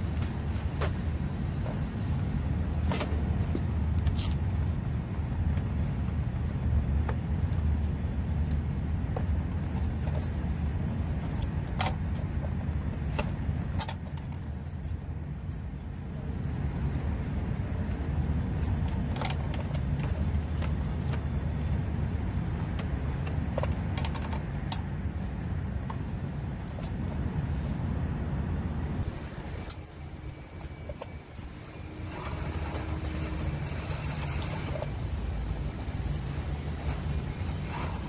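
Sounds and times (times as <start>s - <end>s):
low engine hum: 0.0s - 38.0s.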